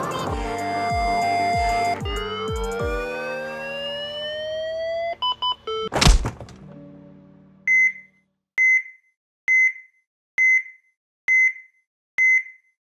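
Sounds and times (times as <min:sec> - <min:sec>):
heart monitor beeps: 0:07.7 - 0:12.8.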